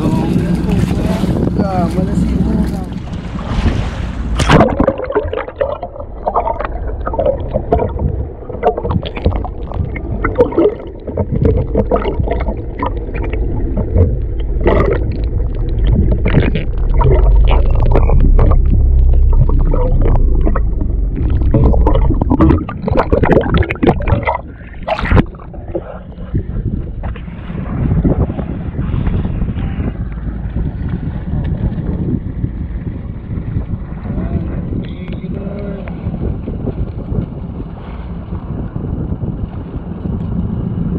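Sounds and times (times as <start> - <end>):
water splash: 0.0 - 26.0
low rumble: 0.0 - 40.9
underwater rushing and gurgling: 0.0 - 40.9.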